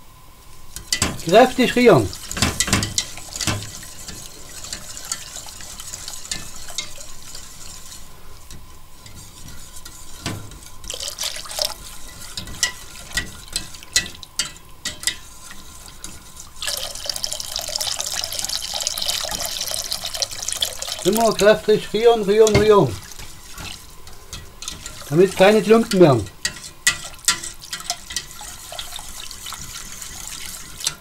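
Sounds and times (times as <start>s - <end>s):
whisk clicking against a pot: 0.7s - 31.0s
water pouring into a pot: 1.2s - 8.0s, 10.9s - 14.3s, 15.7s - 24.0s, 24.6s - 31.0s.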